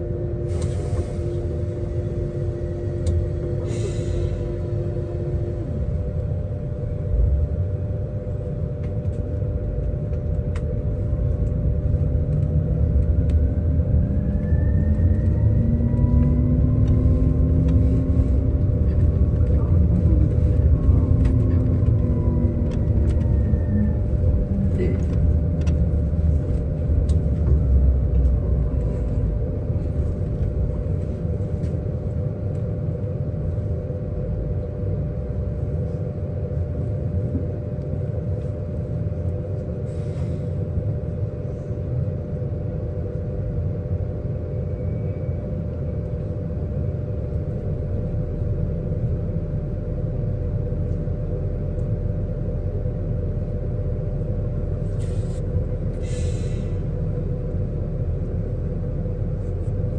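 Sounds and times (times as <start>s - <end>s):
electric bus humming: 0.0s - 59.9s
street traffic rumble: 0.0s - 59.9s.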